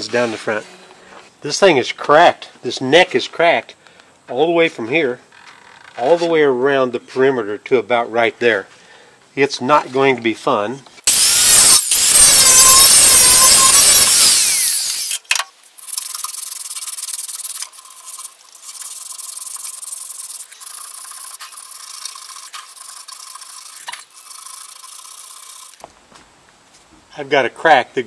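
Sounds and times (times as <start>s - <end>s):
angle grinder wire brush on metal: 11.1s - 25.8s
hand scrubbing metal with abrasive: 11.1s - 25.8s.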